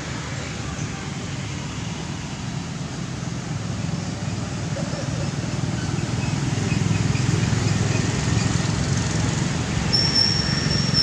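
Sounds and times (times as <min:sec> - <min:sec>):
outdoor rumble and hiss: 0:00.0 - 0:11.0
high whistle-like tone: 0:09.9 - 0:11.0.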